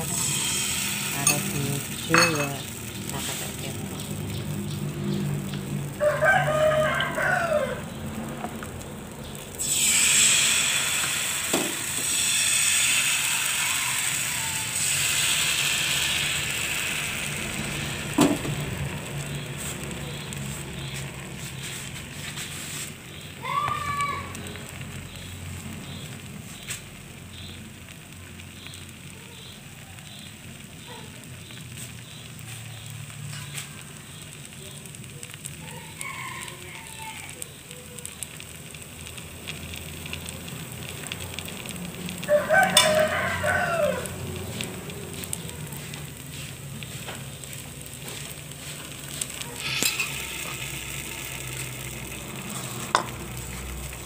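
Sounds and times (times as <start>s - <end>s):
batter sizzling in a frying pan: 0.0s - 54.0s
rooster crowing: 5.8s - 8.0s, 11.7s - 17.3s, 35.6s - 37.6s, 42.2s - 45.9s.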